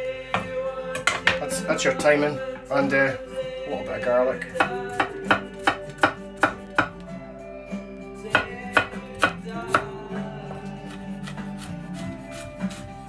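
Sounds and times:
knife chopping on wooden board: 4.5 - 7.0, 8.3 - 9.9, 10.6 - 12.9.

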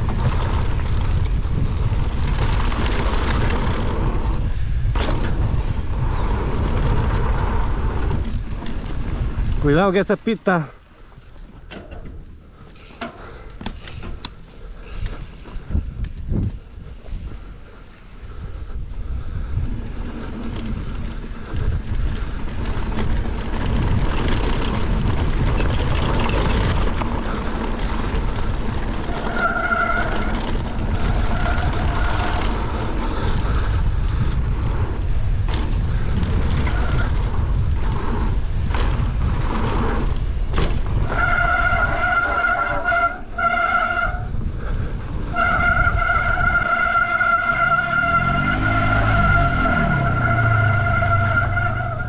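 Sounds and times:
tyres rumbling on dirt: 0.0 - 52.0
wind rushing over microphone: 0.0 - 52.0
disc brakes squealing: 29.0 - 32.6, 40.8 - 44.4, 45.2 - 52.0.

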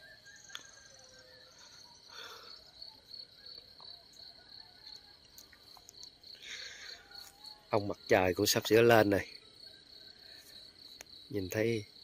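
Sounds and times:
insect chirring: 0.0 - 12.0.

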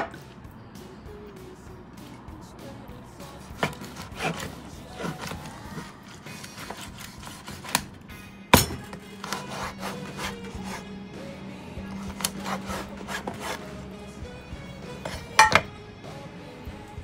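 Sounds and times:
blade sliding: 3.5 - 8.0, 8.7 - 10.9, 11.8 - 13.9, 14.9 - 15.6
knife chopping on wooden board: 3.6 - 7.9, 8.6 - 10.8, 12.0 - 13.6.

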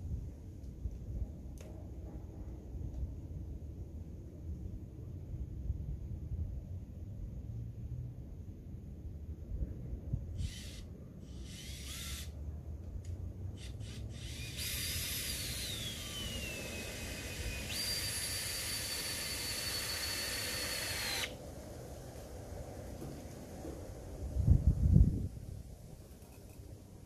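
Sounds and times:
power drill whining: 10.4 - 12.4, 13.6 - 21.4.

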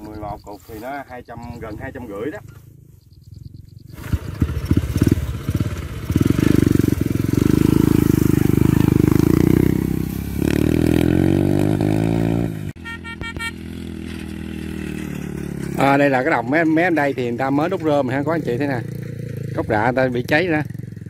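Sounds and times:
motorcycle engine revving: 2.5 - 21.0.

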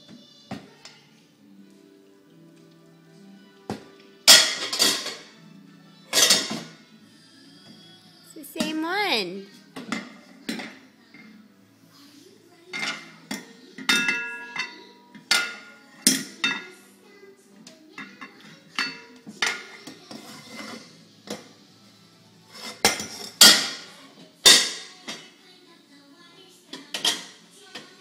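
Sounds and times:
metal bowls and pots clanking: 4.2 - 5.4, 6.1 - 6.7, 13.8 - 16.8, 22.5 - 23.9.

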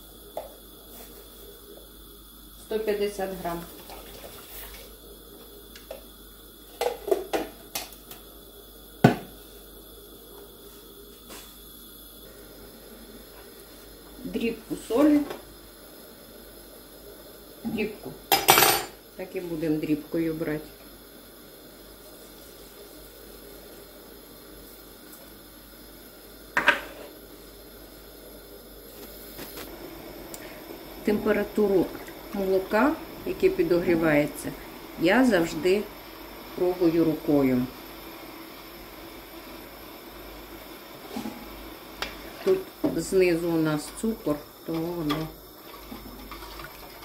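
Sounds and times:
faint steady hiss: 0.0 - 47.0
container knocking on countertop: 9.0 - 9.3, 26.6 - 26.9.

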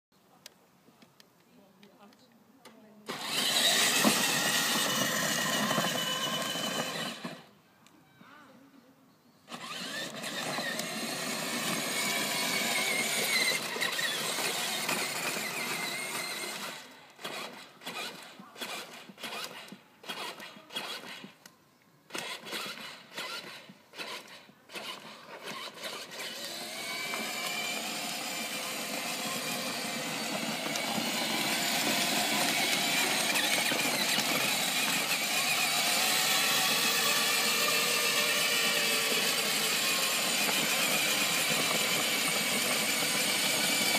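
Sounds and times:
toy car motor whining: 3.0 - 7.5, 9.5 - 21.5, 22.1 - 43.9.

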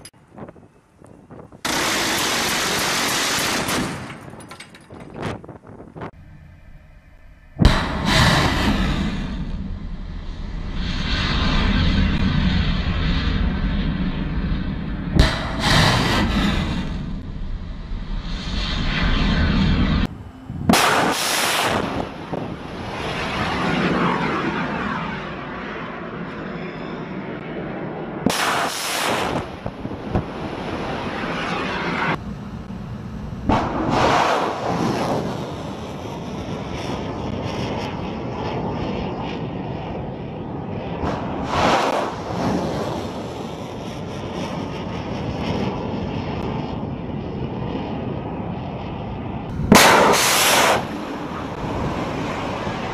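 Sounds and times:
missile launch roaring rush: 7.5 - 26.3, 28.2 - 32.3, 32.9 - 38.7, 39.4 - 47.0, 49.0 - 52.9
weapon blasts: 20.6 - 22.6, 49.6 - 51.1.

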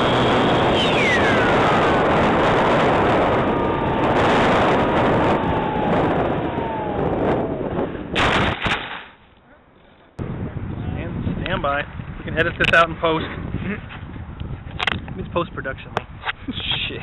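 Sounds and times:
electric motor and propeller whine: 0.0 - 8.2
wind rush: 0.0 - 8.6, 10.2 - 17.0
plane crashing into grass: 8.1 - 9.2.

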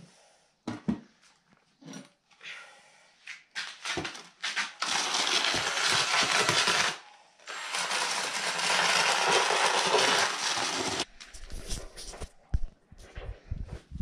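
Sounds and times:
drill mixer churning mortar: 4.8 - 11.1.

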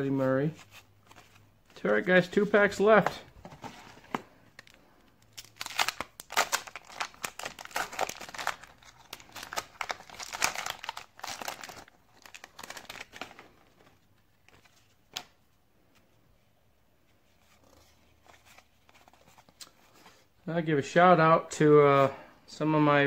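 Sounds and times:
wrapper tearing and crinkling: 5.3 - 13.4.

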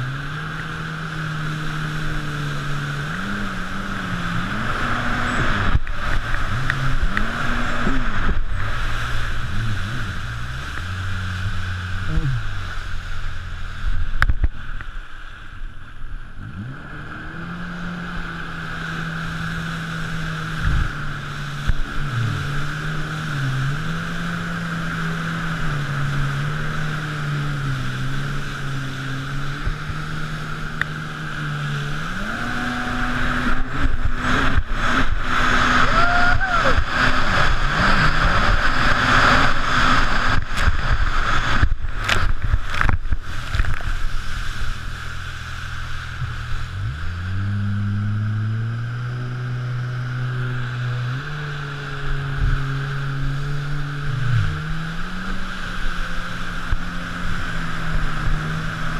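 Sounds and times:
jet ski engine revving: 0.0 - 58.9
rushing wind: 0.0 - 58.9
water spray: 18.4 - 47.6.

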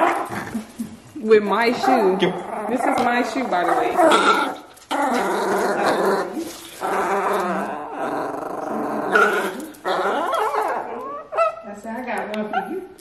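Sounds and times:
puppy growling in play: 0.0 - 11.7.

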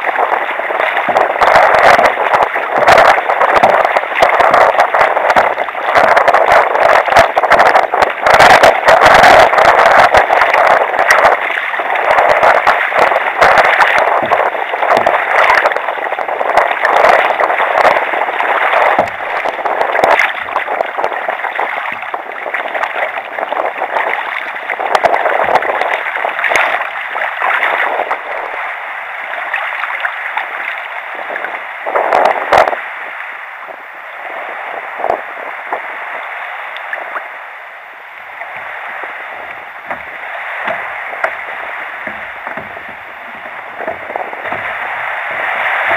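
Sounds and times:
sea water splashing against kayak: 0.0 - 45.9.

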